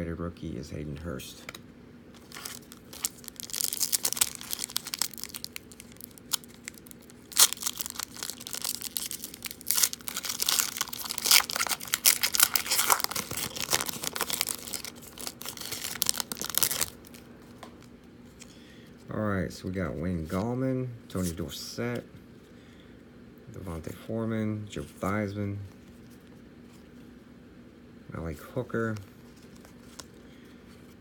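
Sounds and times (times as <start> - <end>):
foil wrapper tearing and crinkling: 2.2 - 17.3.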